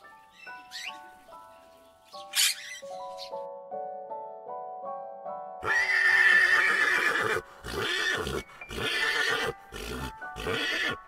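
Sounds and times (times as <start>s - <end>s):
background music: 0.0s - 11.0s
horse neighing: 5.6s - 11.0s.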